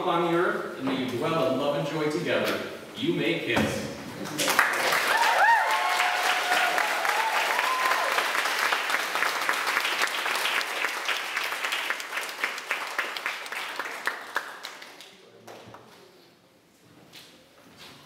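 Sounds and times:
crowd applauding: 0:04.2 - 0:15.2
people cheering: 0:04.4 - 0:13.2.

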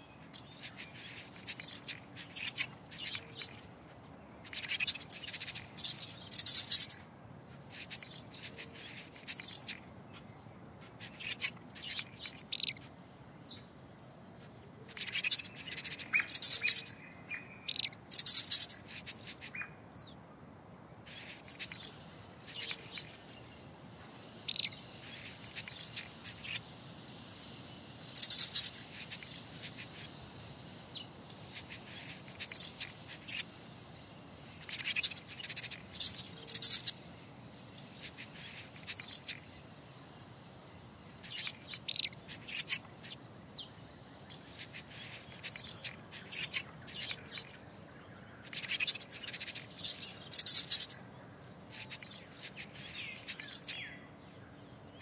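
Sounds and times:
high-pitched chirping squeaks: 0:00.2 - 0:03.6, 0:04.4 - 0:07.0, 0:07.7 - 0:09.8, 0:10.9 - 0:12.8, 0:14.9 - 0:17.0, 0:17.6 - 0:19.6, 0:21.1 - 0:23.2, 0:24.4 - 0:26.6, 0:28.1 - 0:30.1, 0:31.3 - 0:33.5, 0:34.6 - 0:37.0, 0:37.8 - 0:39.4, 0:41.2 - 0:43.2, 0:44.3 - 0:47.6, 0:48.4 - 0:51.0, 0:51.7 - 0:53.9.

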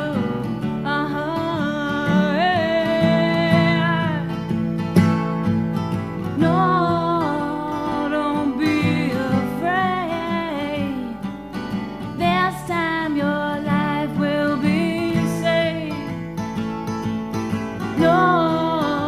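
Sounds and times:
person singing: 0:00.0 - 0:04.3, 0:06.4 - 0:11.2, 0:12.2 - 0:16.1, 0:17.9 - 0:19.0
guitar accompaniment: 0:00.0 - 0:19.0.

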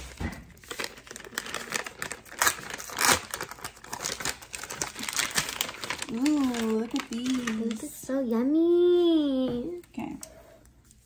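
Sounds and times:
plastic packaging crinkling and tearing: 0:00.0 - 0:08.6.

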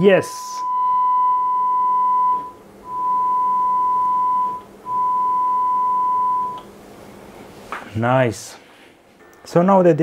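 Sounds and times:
faint hum: 0:00.0 - 0:10.0
sine wave test tone: 0:00.1 - 0:06.7.

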